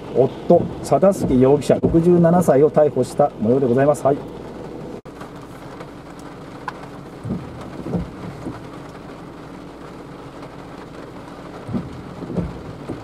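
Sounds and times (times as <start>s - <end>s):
low outdoor rumble: 0.0s - 13.0s
dull low thumps: 0.5s - 2.2s, 7.2s - 9.2s, 11.6s - 13.0s.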